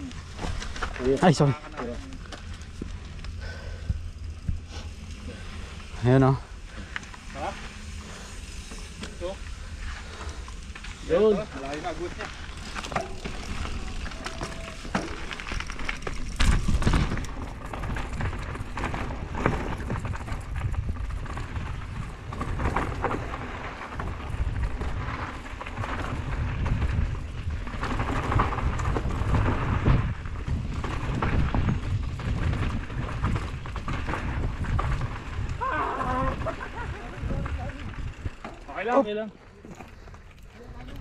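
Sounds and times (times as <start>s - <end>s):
bike rattling and knocking: 0.0s - 41.0s
bike tyres rolling on rocky trail: 0.0s - 41.0s
wind buffeting microphone: 8.0s - 38.6s.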